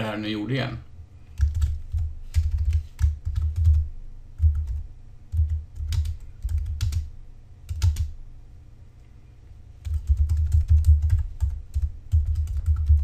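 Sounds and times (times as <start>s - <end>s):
computer keyboard typing: 1.4s - 7.1s, 7.7s - 8.2s, 9.8s - 13.0s.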